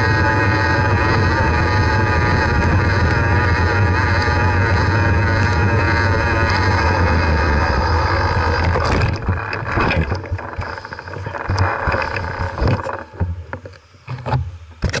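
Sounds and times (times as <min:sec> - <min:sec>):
wind buffeting microphone: 0:00.0 - 0:10.7
bicycle tyre noise: 0:00.0 - 0:13.6
bicycle rattles and clicks: 0:00.0 - 0:13.7.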